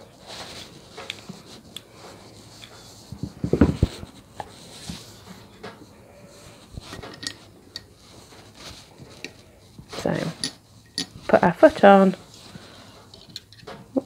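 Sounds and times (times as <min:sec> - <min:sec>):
tools and brass parts clicking: 0:06.9 - 0:07.9, 0:10.4 - 0:11.2, 0:13.1 - 0:13.8.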